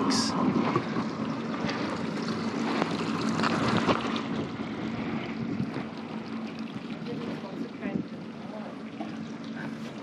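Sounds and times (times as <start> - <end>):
boat motor idling: 0.0 - 10.0
water sloshing against hull: 0.0 - 10.0
wind on microphone: 3.4 - 6.0.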